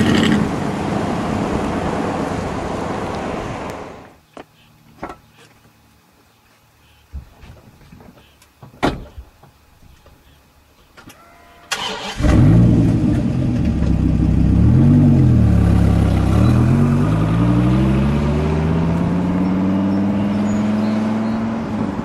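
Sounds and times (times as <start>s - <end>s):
car engine revving and accelerating: 12.1s - 22.0s.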